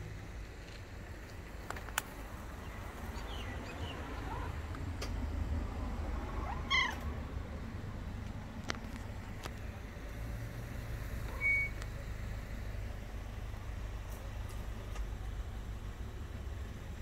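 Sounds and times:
cat meowing: 6.4 - 7.0.

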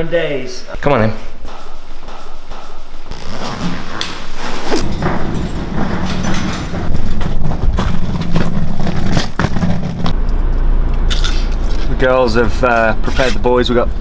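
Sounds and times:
wheeled bag rumbling on stone: 3.1 - 10.2
bag wheels knocking over joints: 4.7 - 10.2.

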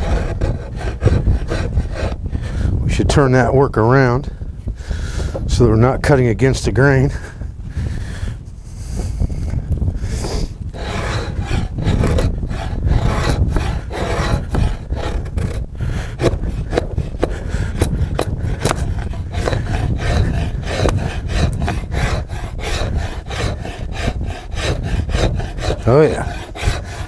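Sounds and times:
draw knife shaving wood: 0.0 - 2.2, 10.1 - 27.0.

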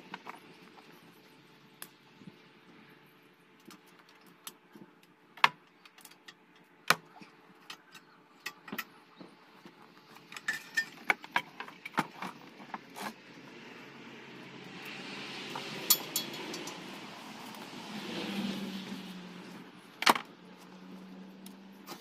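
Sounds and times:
metal knocks and clinks: 10.3 - 11.0, 15.8 - 16.8.

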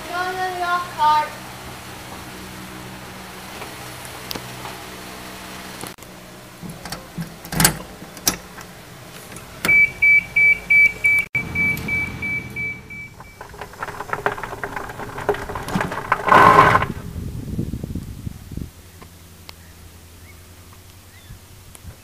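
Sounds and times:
electric cart rolling: 1.4 - 17.2
rapid high warning beeps: 9.7 - 13.4.

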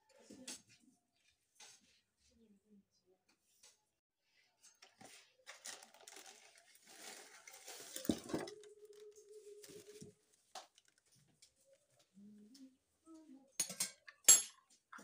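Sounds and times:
plastic bag rustling and crinkling: 4.8 - 11.2.

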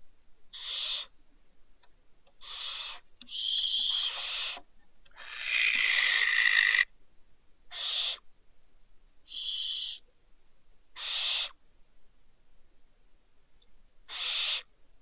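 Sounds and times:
barn owl screeching: 0.5 - 1.1, 2.4 - 6.9, 7.7 - 8.2, 9.3 - 10.0, 11.0 - 11.6, 14.1 - 14.7.

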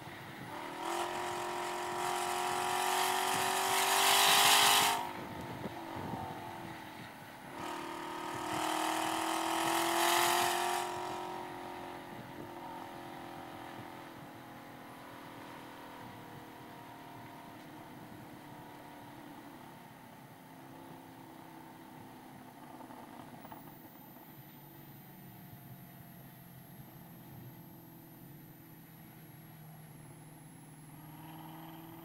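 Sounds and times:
car engine revving: 0.4 - 14.2, 28.3 - 32.0.

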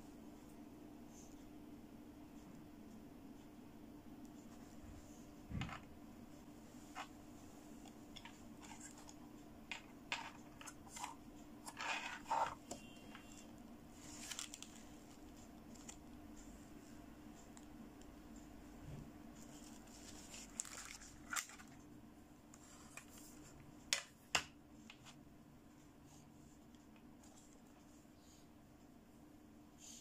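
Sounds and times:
steady low hum: 0.0 - 30.0
hands handling plastic doll: 7.8 - 12.9, 14.0 - 16.0, 19.4 - 21.9.

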